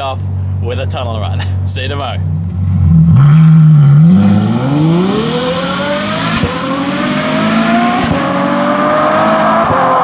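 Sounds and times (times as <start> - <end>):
car engine accelerating hard: 2.2 - 10.0.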